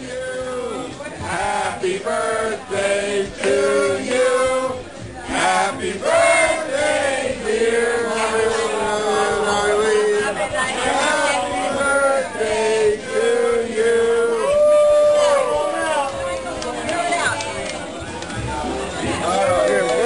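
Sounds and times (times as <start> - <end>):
group of people singing: 0.0 - 14.8.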